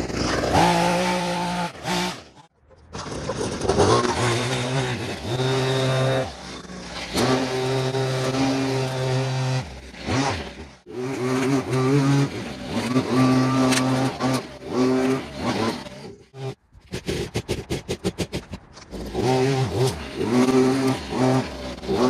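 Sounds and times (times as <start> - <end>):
leaf blower revving: 0.0 - 2.4, 3.0 - 17.2, 18.9 - 22.0.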